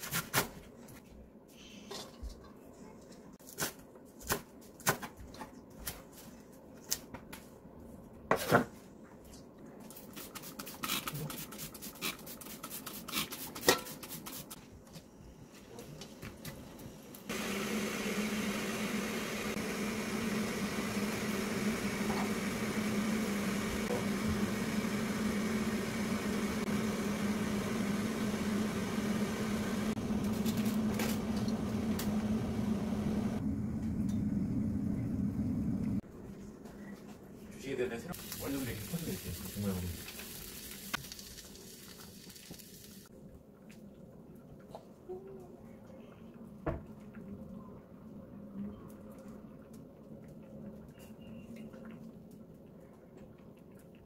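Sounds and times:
pot of stew cooking hiss: 0:15.4 - 0:33.4, 0:38.2 - 0:43.1.

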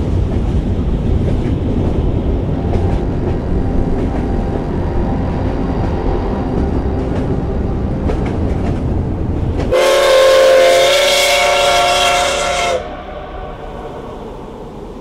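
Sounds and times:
train rumbling and clattering: 0:00.0 - 0:15.0
loud train whistle: 0:09.7 - 0:15.0.

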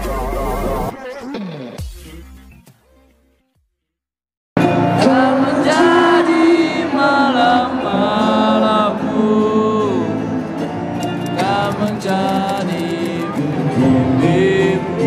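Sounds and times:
person singing long held notes: 0:04.6 - 0:10.7, 0:11.4 - 0:15.0.

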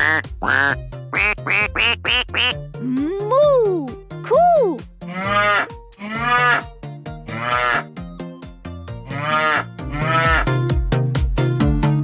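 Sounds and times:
children's tune with beat: 0:00.0 - 0:12.0
recorded cow moo: 0:05.2 - 0:06.6, 0:07.3 - 0:07.9, 0:09.1 - 0:10.5.

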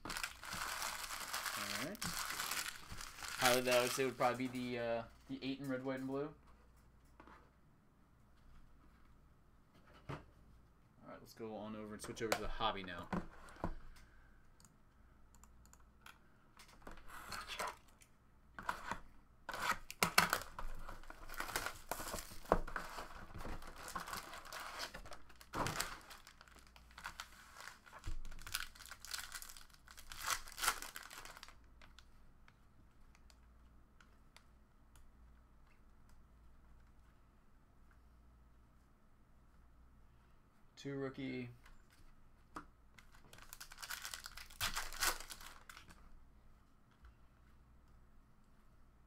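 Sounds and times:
wrappers tearing and crinkling: 0:00.0 - 0:04.6, 0:19.5 - 0:31.6, 0:43.3 - 0:46.0.

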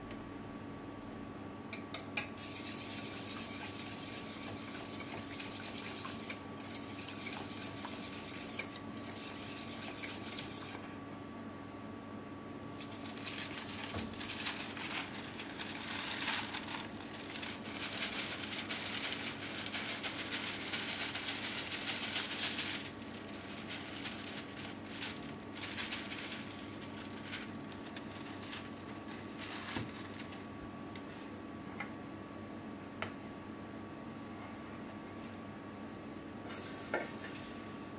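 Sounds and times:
flour pouring into metal bowl: 0:12.7 - 0:30.0.

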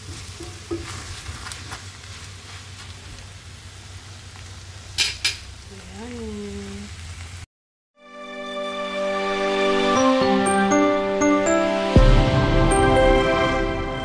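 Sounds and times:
noodles sizzling in a skillet: 0:00.0 - 0:07.5.

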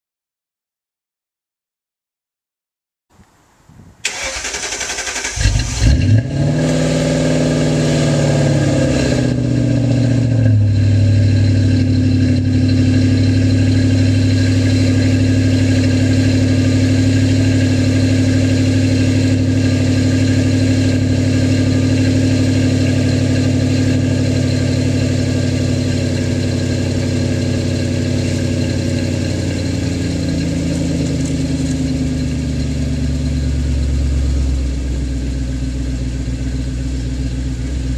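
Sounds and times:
car engine idling: 0:04.0 - 0:37.9
starter motor cranking: 0:04.1 - 0:06.0.

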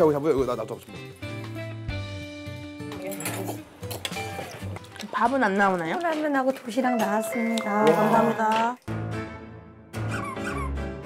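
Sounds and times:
background music: 0:00.0 - 0:11.0
squeaky comic sound effects: 0:10.0 - 0:10.9.

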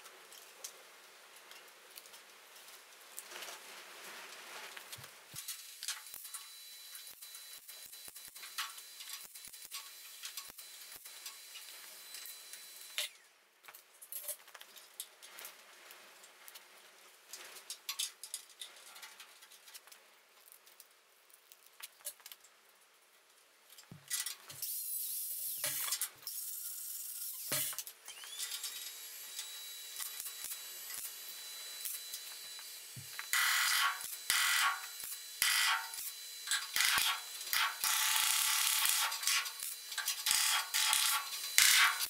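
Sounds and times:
welder crackling sizzle: 0:01.4 - 0:13.8, 0:23.8 - 0:42.0
power tool whirring: 0:05.4 - 0:13.3, 0:24.6 - 0:42.0.

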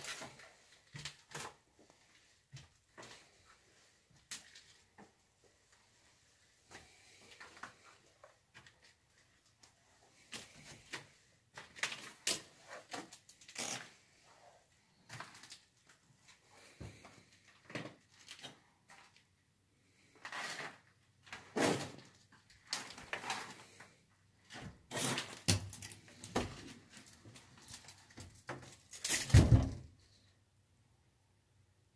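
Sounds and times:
knocks scuffs and creaks: 0:22.8 - 0:29.8.

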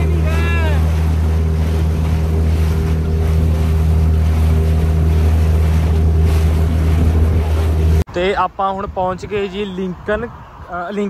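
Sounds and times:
motorboat engine humming: 0:00.0 - 0:11.0
water rushing past hull: 0:00.0 - 0:11.0
wind buffeting microphone: 0:00.0 - 0:11.0.

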